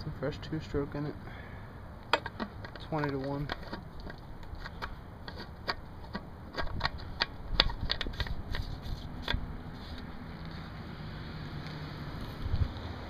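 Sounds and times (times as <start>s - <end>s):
chainsaw being handled knocking: 2.1s - 3.8s.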